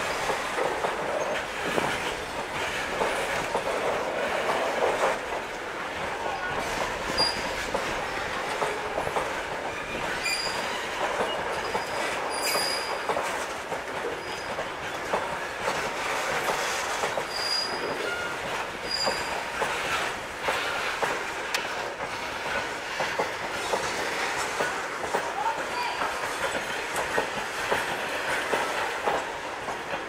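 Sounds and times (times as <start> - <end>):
freight wagons rolling on rails: 0.0 - 30.0
wheels clattering over rail joints: 6.2 - 25.4.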